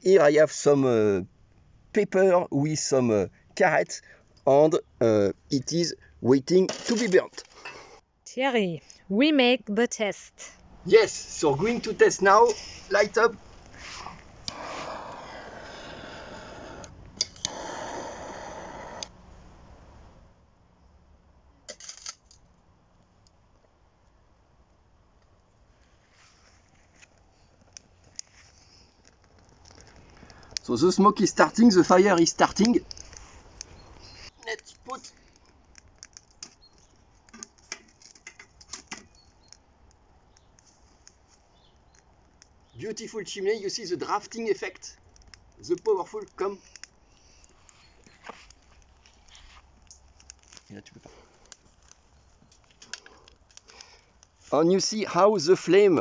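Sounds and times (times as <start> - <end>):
jet flame hissing: 13.7 - 19.2
small metal clicks and ticks: 29.0 - 30.7, 32.0 - 41.2, 44.1 - 54.4.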